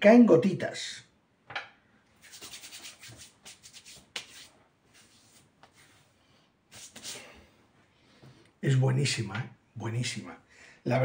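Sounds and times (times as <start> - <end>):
hands patting skin: 2.2 - 6.0, 6.7 - 7.3
hands rubbing together: 2.2 - 6.1, 6.7 - 7.4.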